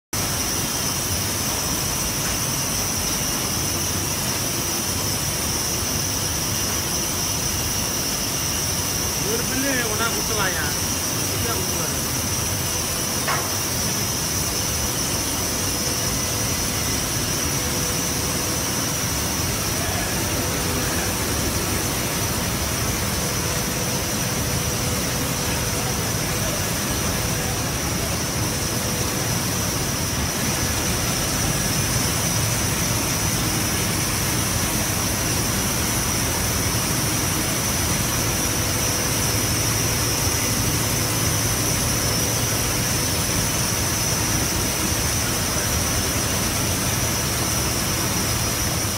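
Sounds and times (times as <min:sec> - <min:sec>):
steam venting hiss: 0:00.2 - 0:48.9.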